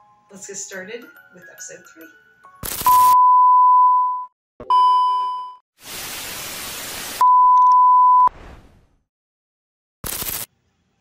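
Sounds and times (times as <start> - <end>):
tv static: 5.8 - 7.2, 10.0 - 10.5.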